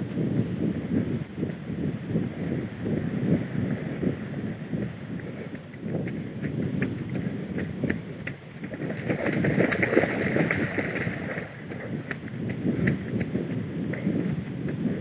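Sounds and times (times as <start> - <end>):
footsteps running on muddy track: 4.8 - 15.0.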